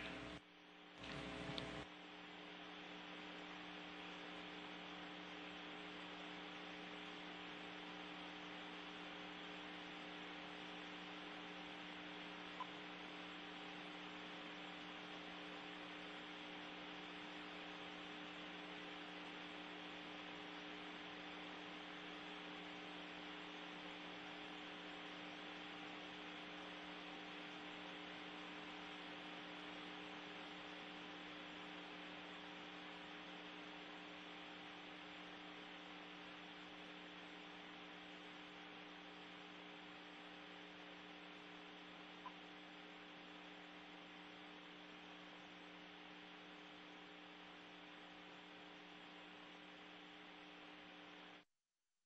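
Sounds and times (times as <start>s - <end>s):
faint electrical hum with hiss: 0.0s - 51.4s
brief click: 1.0s - 1.8s.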